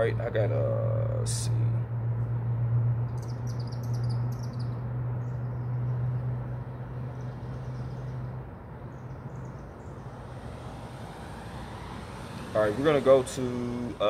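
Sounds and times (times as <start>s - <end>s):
birds chirping: 3.1s - 14.0s
steady low hum: 4.2s - 14.0s.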